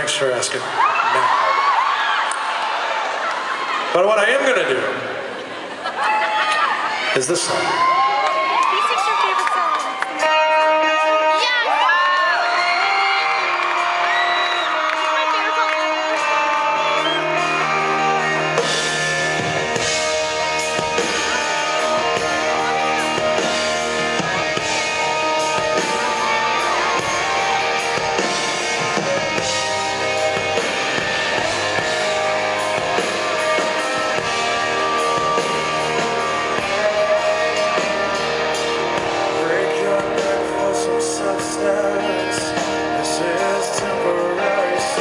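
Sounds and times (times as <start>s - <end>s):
rock band playing: 7.4s - 45.0s
drums and cymbals: 16.1s - 45.0s.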